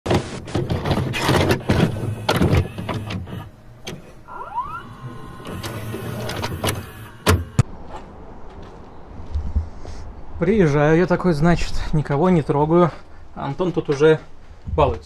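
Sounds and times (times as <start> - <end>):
short rising squeak: 4.3 - 7.6.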